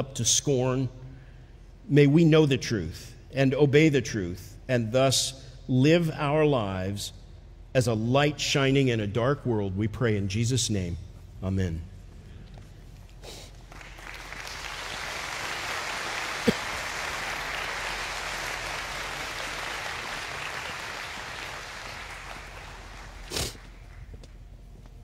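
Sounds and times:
audience applauding: 13.6 - 24.3.

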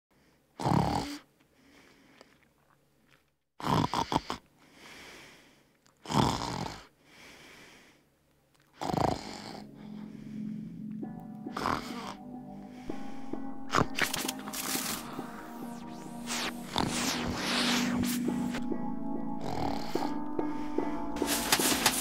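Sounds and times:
breathy snore-like noise surges: 8.8 - 10.9, 14.8 - 18.6, 19.4 - 20.8
low steady drone: 9.2 - 22.0.

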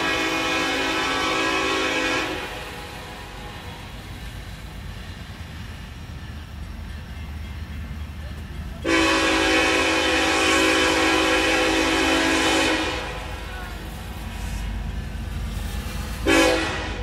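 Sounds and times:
locomotive air horn: 0.0 - 3.8, 8.8 - 13.8, 16.2 - 17.0.

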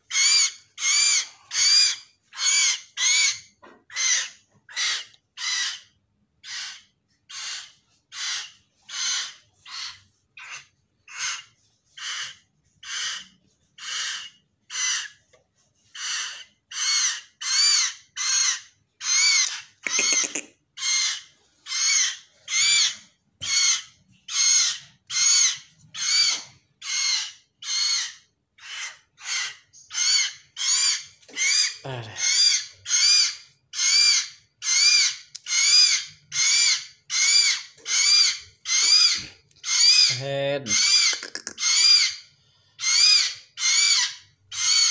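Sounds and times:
bird chick begging calls: 0.1 - 15.1.

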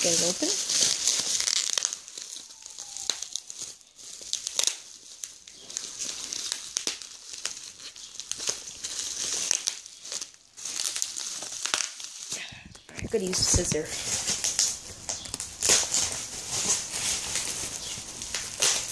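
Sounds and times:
bubble wrap crinkling: 0.0 - 18.9.

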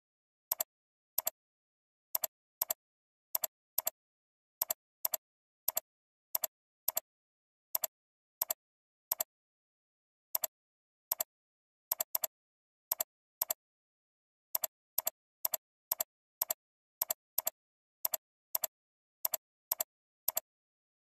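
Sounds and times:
computer mouse clicks: 0.5 - 1.4, 2.2 - 2.8, 3.4 - 4.0, 4.6 - 7.1, 7.8 - 9.3, 11.9 - 12.3, 12.9 - 13.6, 14.6 - 20.5.

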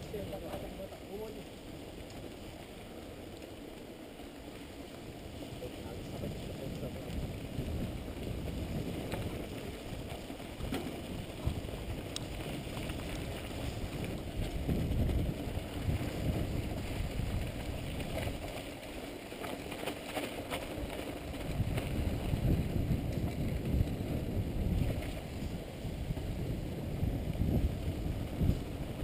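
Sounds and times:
bike clicks and rattles: 0.0 - 29.0
wind buffeting microphone: 3.6 - 18.9, 20.6 - 29.0
tyre rumble on dirt: 7.2 - 29.0.

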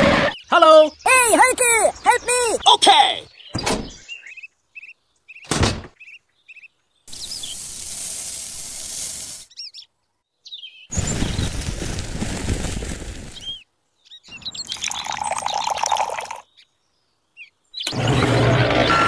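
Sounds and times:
birds chirping: 0.0 - 12.0, 13.3 - 19.0
sand and powder pouring: 7.1 - 9.5, 10.9 - 13.6.

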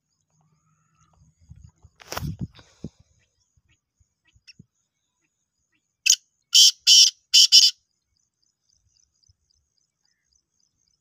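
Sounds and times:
francolin calling harsh notes: 6.1 - 7.8.

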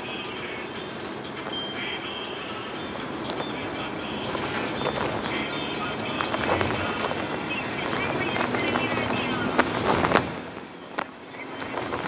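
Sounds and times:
tyre and road rumble: 0.0 - 12.0
van engine: 0.0 - 12.0
wind noise: 6.1 - 12.0.

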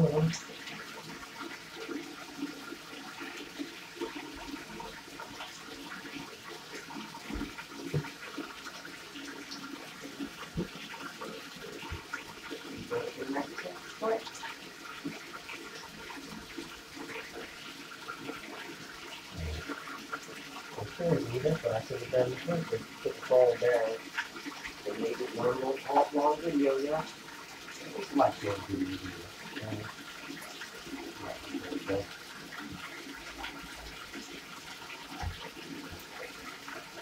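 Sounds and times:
tap water running into bathtub: 0.0 - 37.0
small splashes and knocks: 6.9 - 8.8, 9.5 - 13.2, 30.9 - 37.0.

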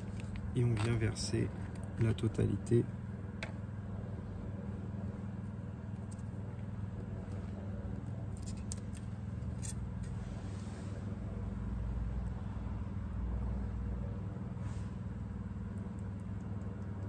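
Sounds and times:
diesel engine idling: 9.0 - 17.0.

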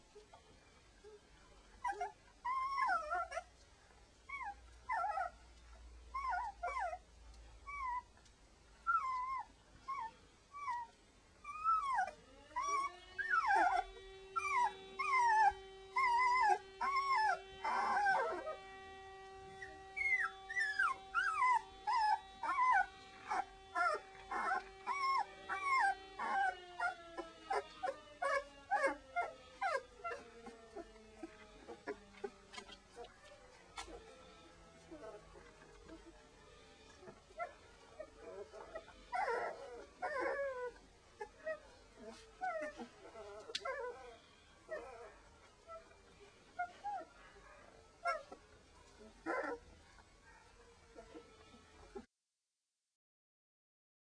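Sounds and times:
puppies squeaking and whimpering: 1.8 - 3.5, 4.3 - 5.4, 6.1 - 7.0, 8.9 - 47.2, 48.0 - 49.7, 50.9 - 52.1
long held gliding tone: 12.3 - 32.4.

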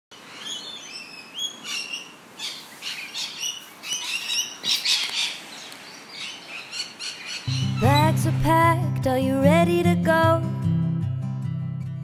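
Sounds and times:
birds chirping: 0.1 - 8.6.

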